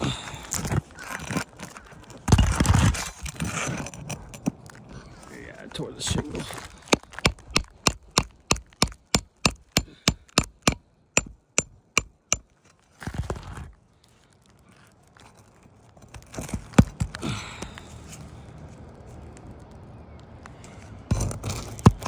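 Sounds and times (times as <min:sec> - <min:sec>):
tool scraping on shingles: 0:00.5 - 0:13.7, 0:21.1 - 0:22.0
hammer tapping on steel tool: 0:07.1 - 0:12.5.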